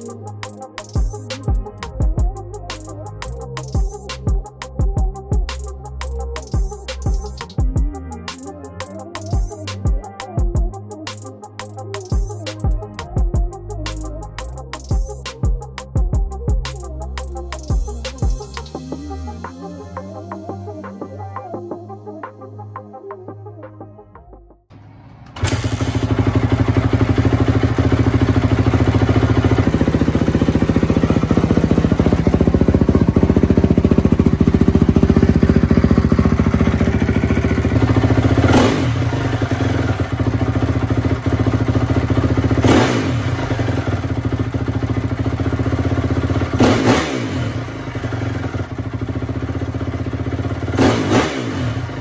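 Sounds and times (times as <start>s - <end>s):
dirt bike engine idling: 0.0s - 10.8s, 24.8s - 52.0s
engine throttle blips: 24.7s - 45.2s.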